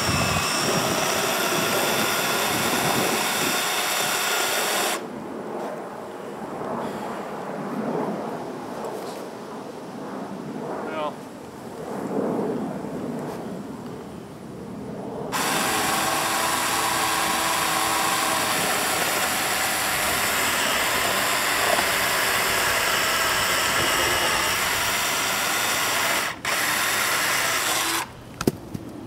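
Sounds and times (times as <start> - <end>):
electric chainsaw cutting wood: 0.0 - 5.0, 15.3 - 28.2.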